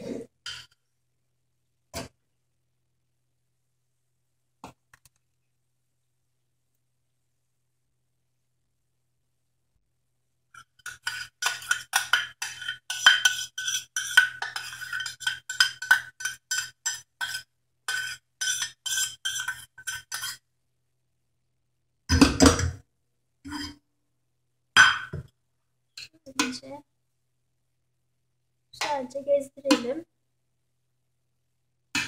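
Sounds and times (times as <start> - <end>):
metal spoon scraping a pan: 0.4 - 0.8, 10.6 - 20.4, 23.5 - 23.8.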